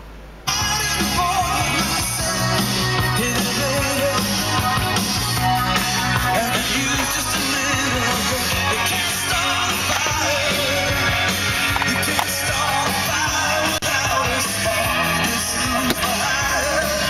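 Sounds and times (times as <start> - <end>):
song with singer and band on radio: 0.4 - 17.0.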